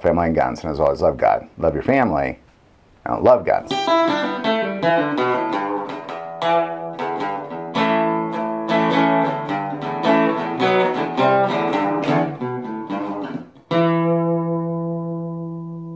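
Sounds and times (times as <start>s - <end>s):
acoustic guitar music: 3.2s - 15.9s.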